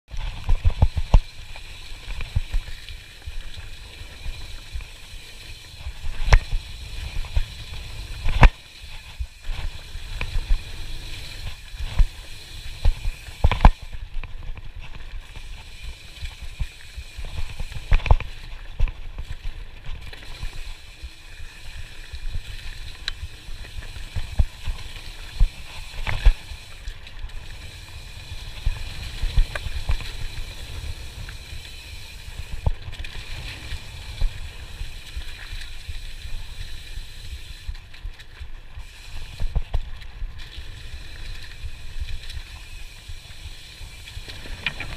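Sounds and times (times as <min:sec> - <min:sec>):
wind rumble on camera: 0:00.1 - 0:02.9, 0:22.2 - 0:36.8
bike knocking and rattling: 0:00.1 - 0:44.9.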